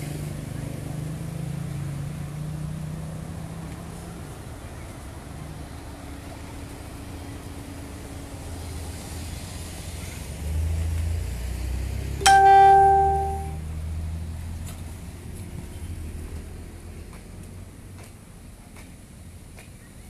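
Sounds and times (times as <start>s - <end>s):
street traffic: 0.0s - 20.0s
loud bell-like ring: 12.2s - 13.6s.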